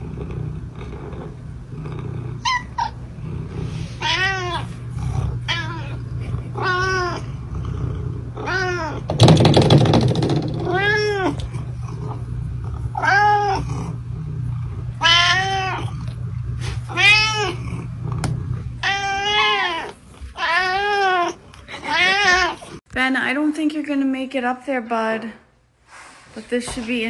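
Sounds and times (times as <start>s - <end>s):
cat meowing: 4.0s - 4.7s, 8.4s - 9.1s, 13.0s - 13.7s, 15.0s - 16.0s, 16.9s - 17.6s, 18.8s - 22.6s.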